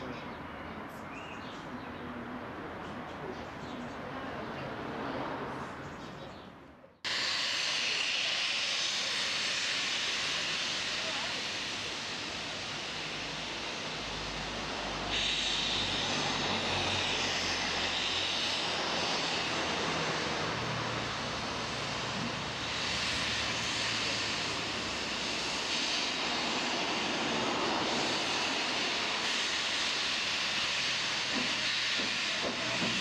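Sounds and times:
steam locomotive hissing: 7.1 - 33.0.

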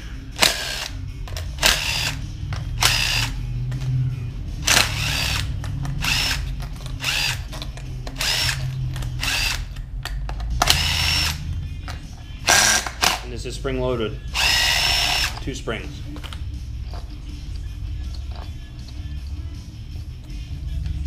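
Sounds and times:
power driver whine: 0.0 - 3.5, 4.6 - 9.8, 10.6 - 11.6, 12.4 - 13.2, 14.2 - 15.9.

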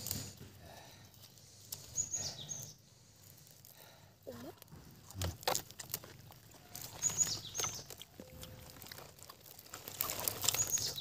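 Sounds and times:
bird chirping: 1.8 - 2.9, 6.6 - 8.6, 10.4 - 11.0
faint chewing clicks: 4.6 - 11.0.

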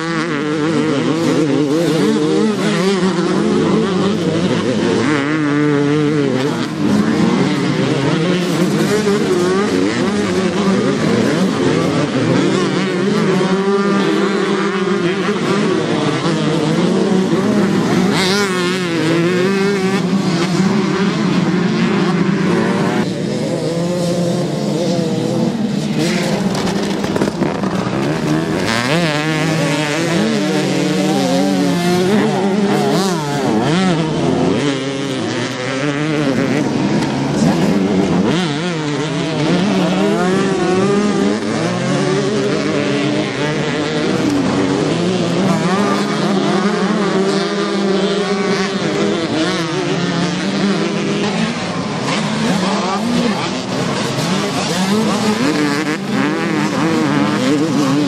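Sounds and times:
motocross bikes revving past: 0.0 - 58.0.

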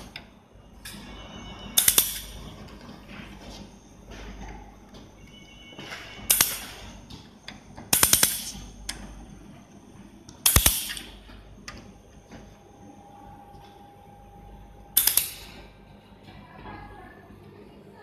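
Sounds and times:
laser welder crackling snaps: 7.9 - 8.6, 10.4 - 11.2, 15.0 - 15.4.

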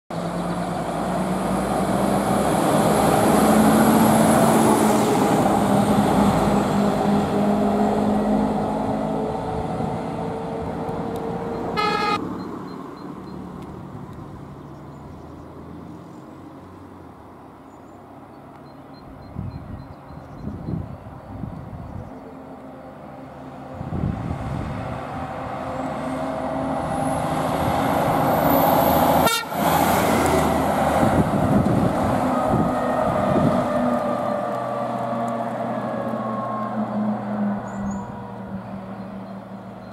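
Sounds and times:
fire engine driving past: 0.1 - 18.3, 20.9 - 39.9
short horn toot: 11.8 - 12.2, 29.2 - 29.6.

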